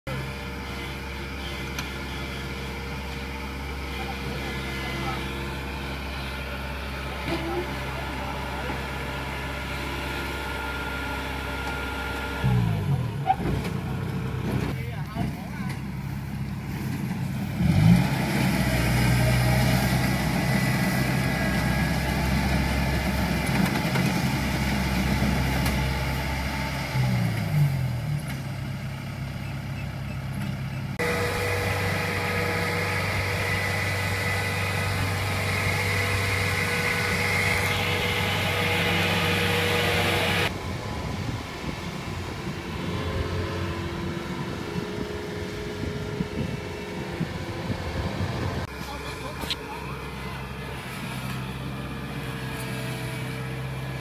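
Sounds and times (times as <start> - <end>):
combine harvester engine running: 0.1 - 54.0
high whine: 31.0 - 50.8.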